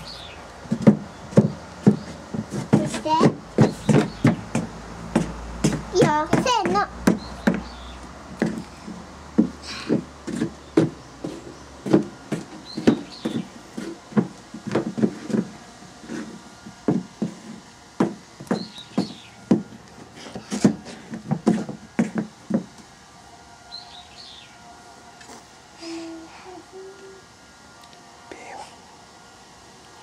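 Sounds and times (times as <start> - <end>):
wooden knocks and taps: 9.4 - 15.5, 18.0 - 19.8.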